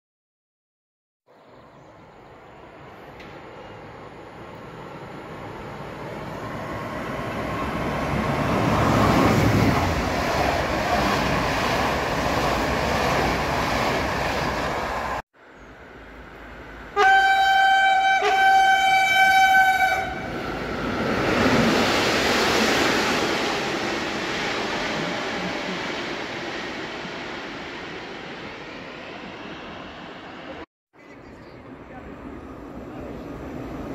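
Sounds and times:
train rumbling on rails: 1.3 - 33.9
train horn: 17.0 - 20.4.

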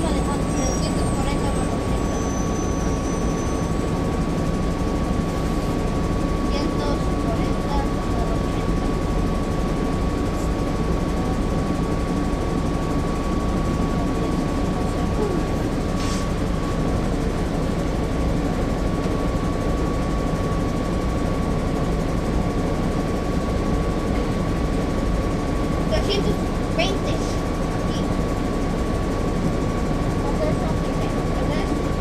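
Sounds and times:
bus diesel engine droning: 0.0 - 32.0
short air hiss: 16.0 - 16.3.

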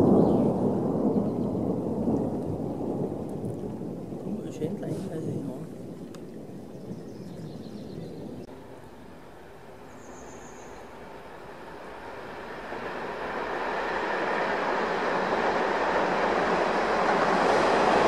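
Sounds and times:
diesel train approaching: 8.5 - 18.0.

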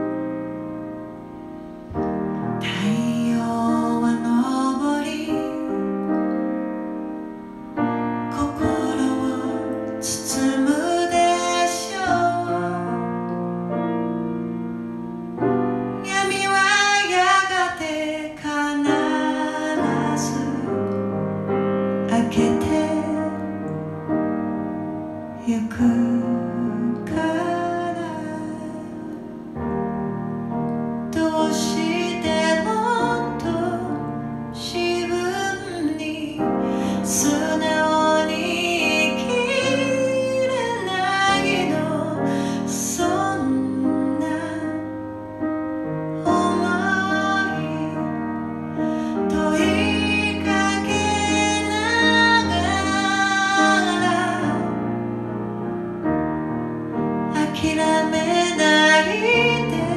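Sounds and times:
piano: 0.0 - 59.9
woman singing pop ballad: 2.6 - 6.3, 8.3 - 13.4, 16.0 - 21.0, 22.0 - 23.6, 25.4 - 29.1, 31.1 - 45.0, 46.2 - 54.8, 57.3 - 59.9.

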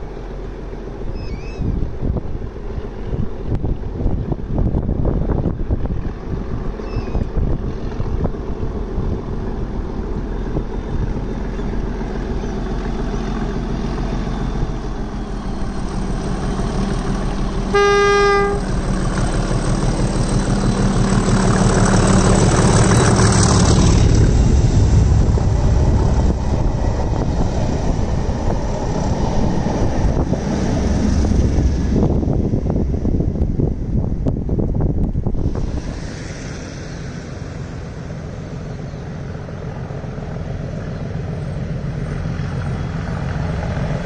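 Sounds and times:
train wheels on rails: 0.0 - 17.8, 18.4 - 33.6, 34.2 - 44.0
diesel locomotive engine: 0.0 - 44.0
train horn: 17.7 - 18.7.

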